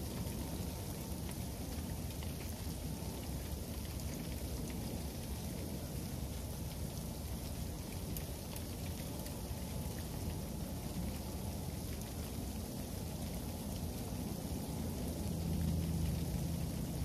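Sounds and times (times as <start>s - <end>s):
freezing rain hissing: 0.0s - 17.0s.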